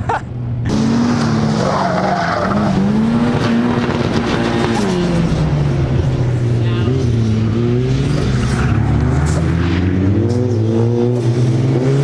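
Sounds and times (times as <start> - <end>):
car engine revving hard: 0.7 - 5.8, 6.8 - 12.0.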